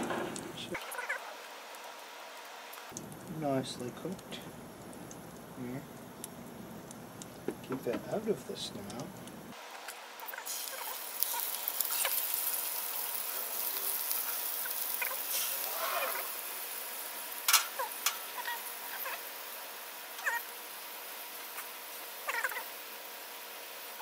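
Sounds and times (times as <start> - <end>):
meat sizzling in a frying pan: 8.2 - 24.0.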